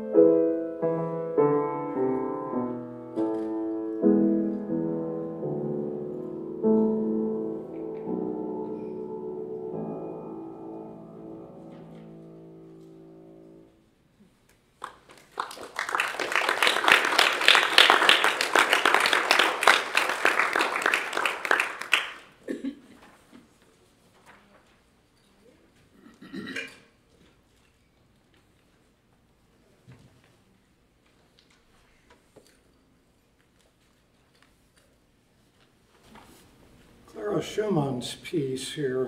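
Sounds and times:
piano chord ringing: 0.0s - 13.8s
audience applauding: 14.8s - 22.4s.

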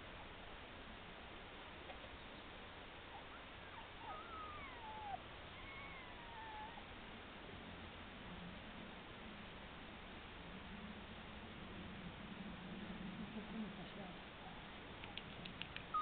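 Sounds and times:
background hiss: 0.0s - 16.0s
puppy whimpering: 3.1s - 6.9s, 14.4s - 16.0s.

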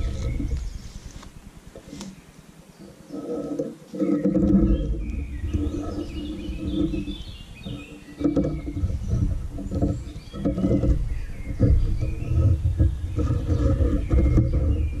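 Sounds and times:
faint clicks: 0.0s - 2.2s
birds chirping: 0.0s - 15.0s
low uneven rumbling: 0.0s - 15.0s.

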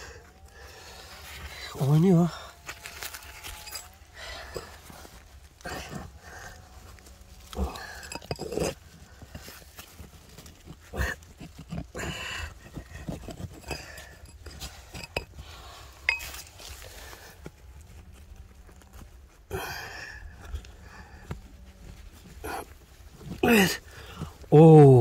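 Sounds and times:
stones scraping and knocking: 1.1s - 25.0s.

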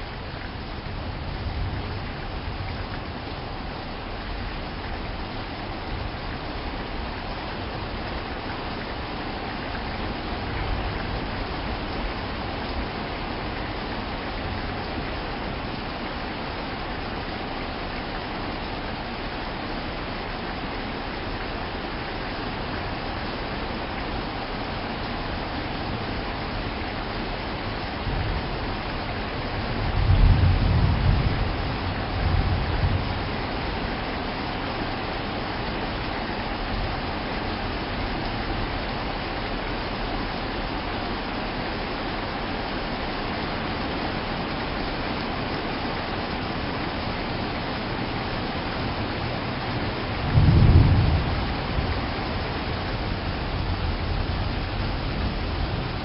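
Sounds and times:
steady rain: 0.0s - 56.0s
thunder rumbling: 28.0s - 34.0s, 49.0s - 56.0s.

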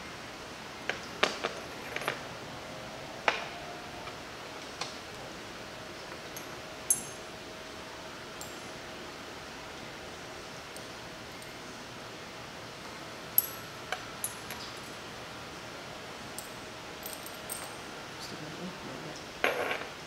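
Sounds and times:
glass tubes clinking on rack: 6.4s - 7.2s.

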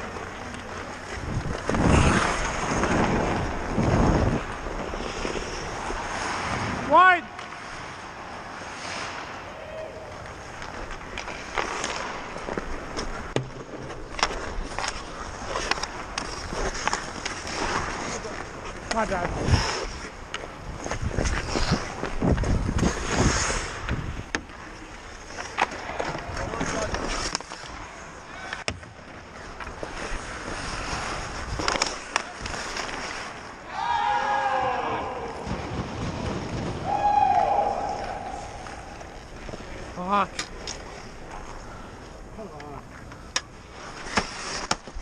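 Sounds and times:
hockey sticks and puck clacking: 0.0s - 45.0s
skates scraping on ice: 0.0s - 45.0s
wind on microphone: 1.2s - 5.8s, 20.6s - 24.3s
hockey stick and puck clacks: 10.1s - 19.2s, 25.3s - 27.8s, 29.5s - 33.5s, 42.6s - 45.0s.

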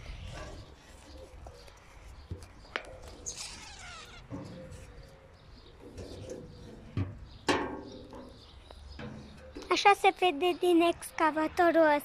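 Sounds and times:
footsteps on metal steps: 5.8s - 9.7s.

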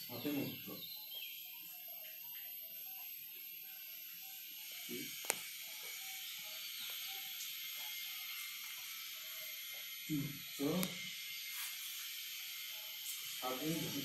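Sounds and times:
chalk scratching on blackboard: 11.5s - 12.1s.

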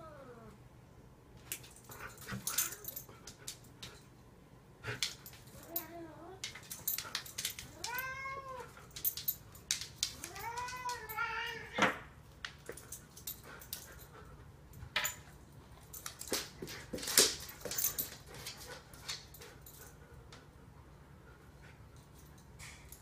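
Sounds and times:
cat meowing: 7.8s - 8.8s.

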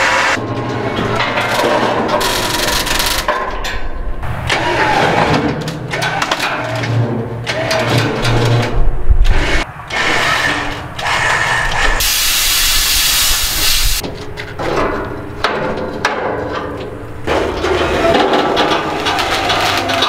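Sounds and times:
compressed air hissing: 11.3s - 14.0s
metal knocks and clanks: 14.0s - 20.0s.

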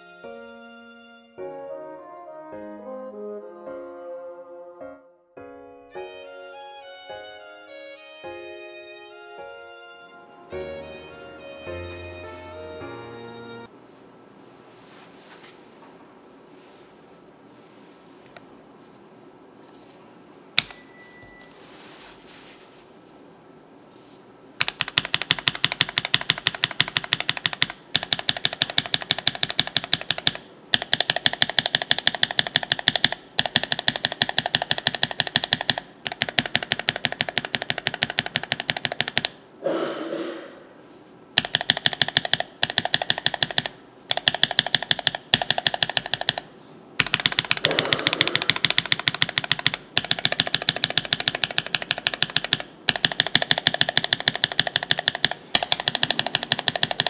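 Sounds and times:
keyboard switches clicking: 20.6s - 20.8s, 24.6s - 39.4s, 41.4s - 57.0s.

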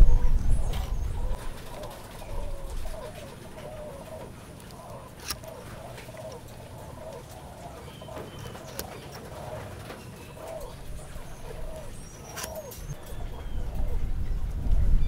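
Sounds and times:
low rumble: 0.0s - 1.7s
doves cooing: 0.0s - 15.0s.

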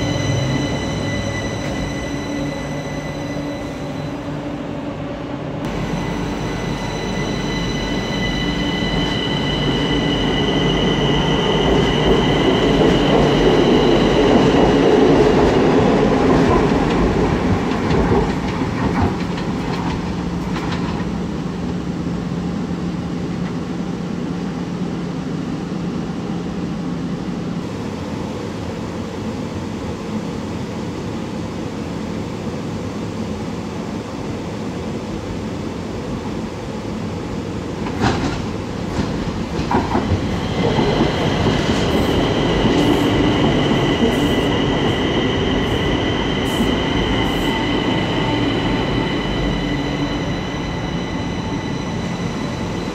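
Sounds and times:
train motor whine and rumble: 0.0s - 25.0s.

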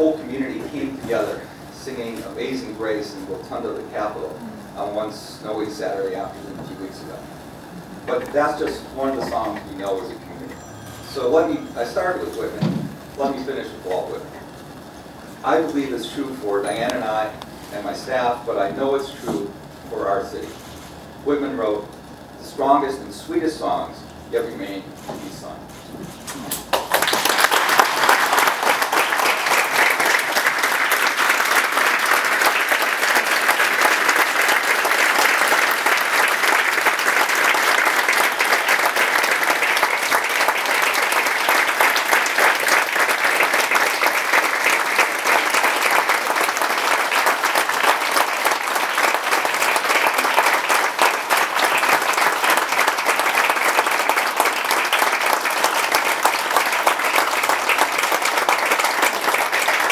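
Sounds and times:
audience clapping: 26.5s - 59.9s.

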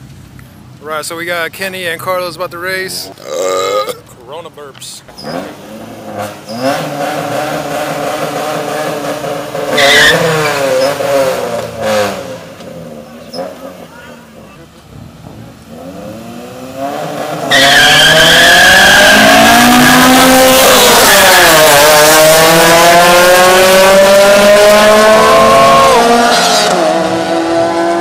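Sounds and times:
car engines revving: 0.0s - 28.0s.

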